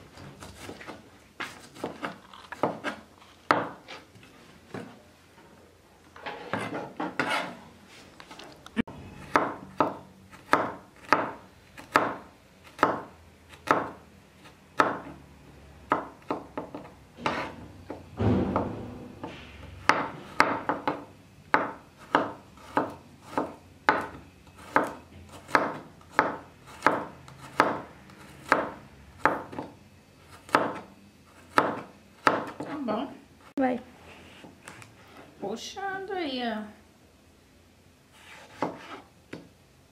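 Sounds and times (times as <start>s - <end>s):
knife scraping board: 0.2s - 4.1s, 6.2s - 7.6s, 17.2s - 17.6s, 38.1s - 39.1s.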